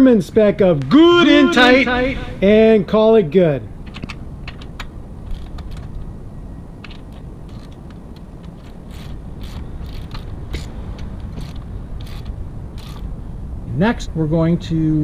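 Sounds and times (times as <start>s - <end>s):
wrench clicking on metal: 4.0s - 5.9s, 6.8s - 13.1s.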